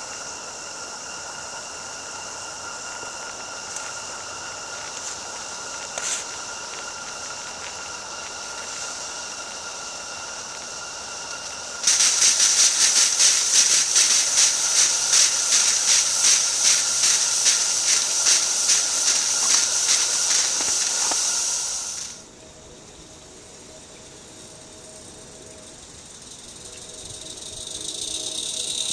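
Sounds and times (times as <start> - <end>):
steam locomotive hissing: 0.0 - 22.4, 23.0 - 28.9
safety valve blowing off: 3.6 - 22.2.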